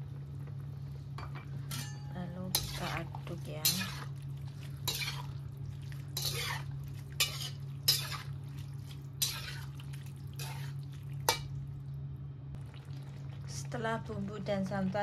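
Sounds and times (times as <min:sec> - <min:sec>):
low hum: 0:00.0 - 0:15.0
metal spatula scraping wok: 0:01.6 - 0:04.2, 0:04.8 - 0:05.4, 0:06.1 - 0:08.4, 0:09.2 - 0:09.8, 0:10.4 - 0:11.5.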